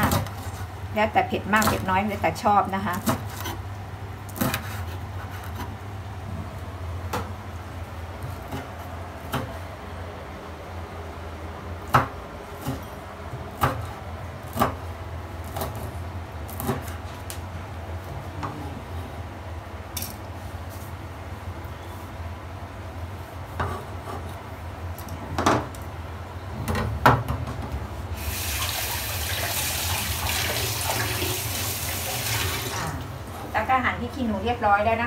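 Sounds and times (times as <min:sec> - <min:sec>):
knife chopping on wooden board: 0:13.6 - 0:14.8.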